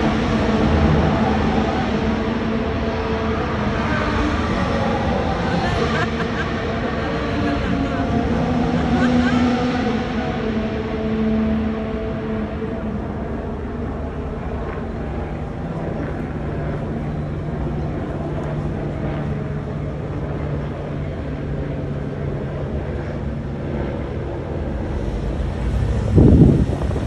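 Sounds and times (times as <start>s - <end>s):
low engine hum: 0.0s - 27.0s
outdoor background noise: 0.0s - 27.0s
wind gust on microphone: 24.0s - 27.0s.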